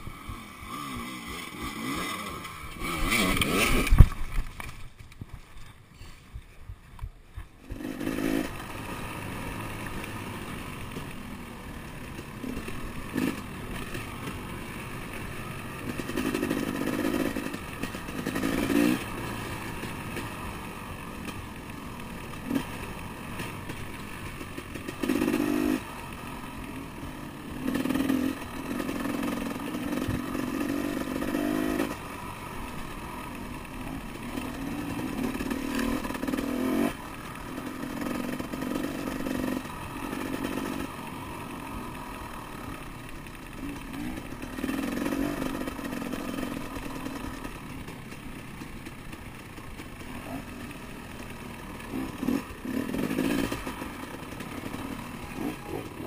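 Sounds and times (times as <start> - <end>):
motorcycle engine revving: 0.0 - 5.8, 7.4 - 56.0.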